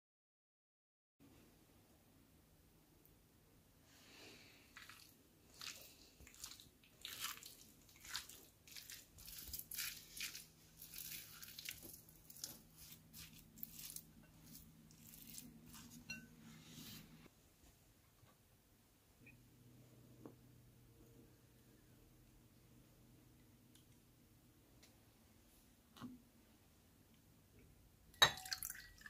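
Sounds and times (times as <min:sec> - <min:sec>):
wooden spatula scraping glass bowl: 0:08.0 - 0:17.2.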